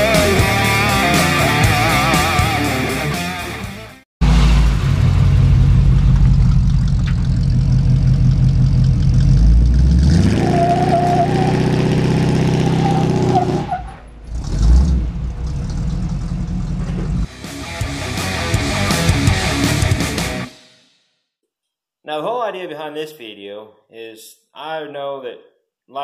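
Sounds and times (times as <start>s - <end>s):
pickup truck engine revving: 4.2s - 20.5s.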